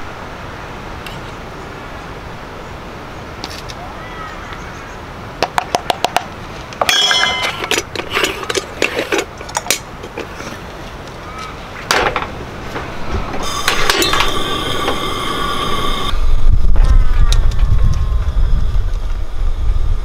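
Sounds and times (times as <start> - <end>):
metallic clinks and knocks: 6.8 - 10.3
gas stove burner hissing: 13.3 - 16.4.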